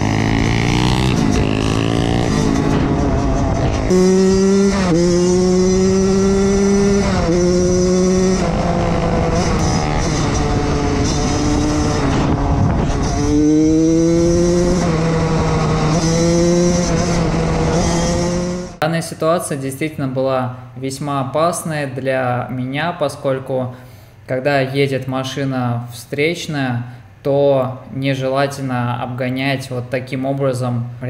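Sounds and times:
motorbike engine revving: 0.0s - 18.8s
wind rushing over microphone: 0.0s - 18.8s.

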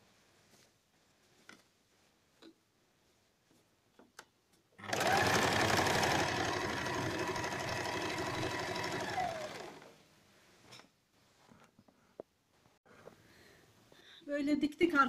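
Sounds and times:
electric sewing machine stitching: 4.8s - 10.0s.

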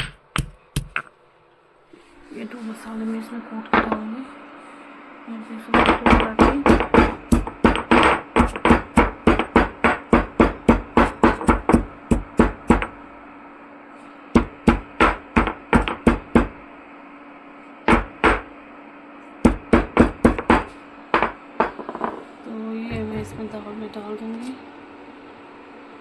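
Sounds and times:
stone pestle pounding in mortar: 0.0s - 1.1s, 5.8s - 13.0s, 14.4s - 16.6s, 17.9s - 18.5s, 19.4s - 21.8s.

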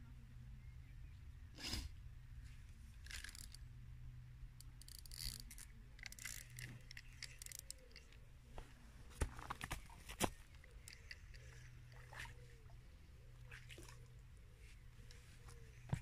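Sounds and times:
fishing reel clicks and rustles: 2.9s - 3.8s, 4.5s - 8.3s, 9.2s - 12.4s.

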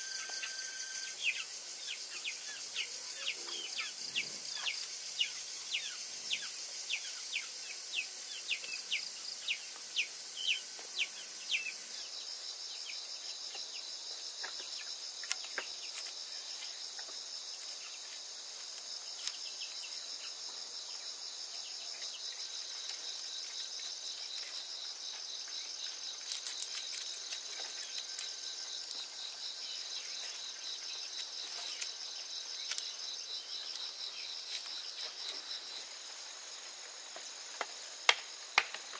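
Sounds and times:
bird chirping: 0.0s - 13.9s
insects trilling: 0.0s - 38.9s.

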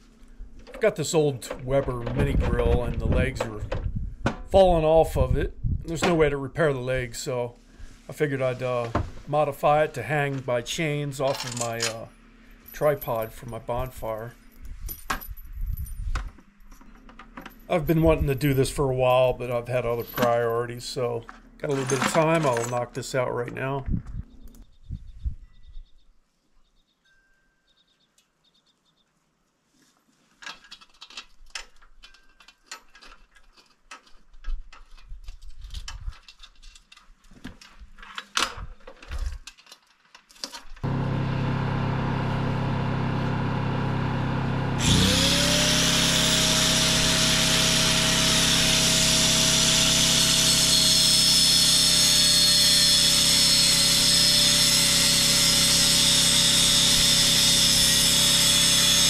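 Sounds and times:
tools and metal clanking: 11.2s - 13.6s, 14.4s - 17.8s, 19.9s - 20.6s, 21.2s - 23.0s, 30.4s - 40.8s
generator humming: 40.8s - 59.0s
power tool whining: 40.8s - 59.0s.

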